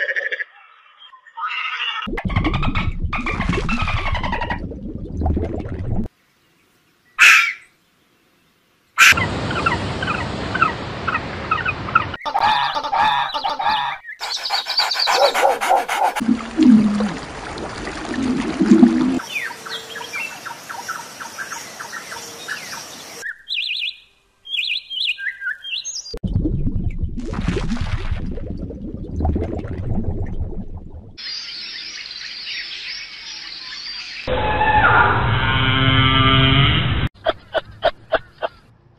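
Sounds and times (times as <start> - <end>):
splashing water: 2.2 - 6.1, 15.1 - 19.2, 26.8 - 31.2
birds chirping and singing: 12.2 - 16.2, 19.2 - 26.2.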